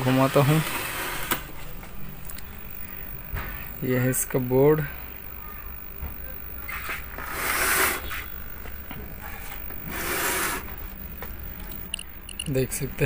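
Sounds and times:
steady low hum: 0:00.0 - 0:13.0
rubbing scraping noises: 0:06.7 - 0:08.4, 0:09.2 - 0:10.8.

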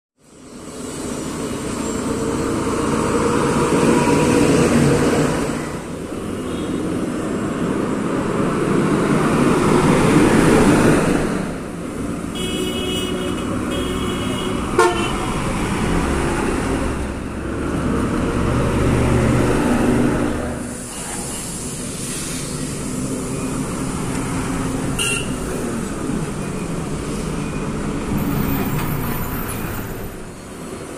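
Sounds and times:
vehicles passing: 0:00.2 - 0:30.9
vehicle horn honking: 0:12.4 - 0:15.4, 0:25.0 - 0:25.4
truck engine rumble: 0:13.2 - 0:30.9.

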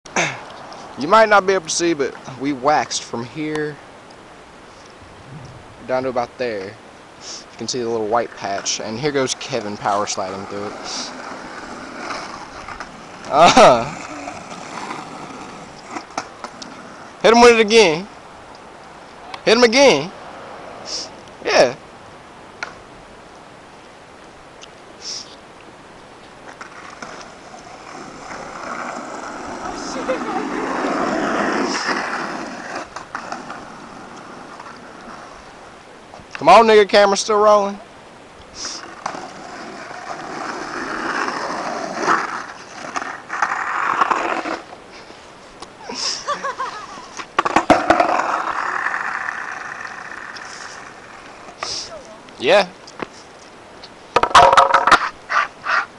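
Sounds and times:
faint outdoor hiss: 0:00.0 - 0:55.9
skateboard wheels rolling on asphalt: 0:00.1 - 0:55.9
skateboard clacks: 0:47.2 - 0:51.7, 0:54.1 - 0:55.8.

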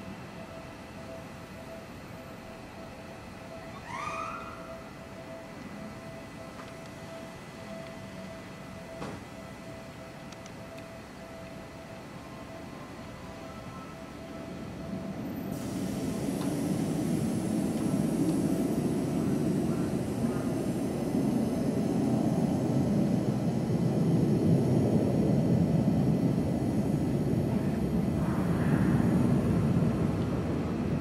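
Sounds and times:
electric train rumbling on track: 0:00.0 - 0:31.0.

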